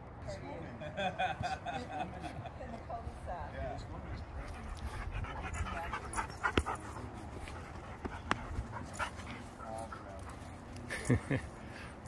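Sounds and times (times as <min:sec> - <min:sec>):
dogs panting: 0:03.7 - 0:12.0.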